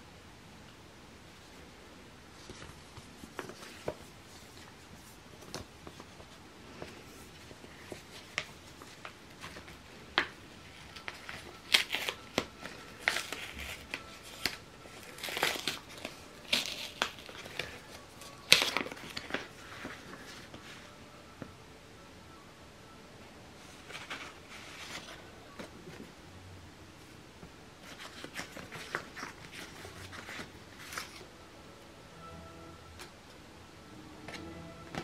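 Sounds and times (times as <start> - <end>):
bubble wrap and paper crinkling: 2.3 - 21.0, 23.6 - 26.2, 27.8 - 31.4
envelope opening: 7.6 - 20.8, 27.8 - 31.3.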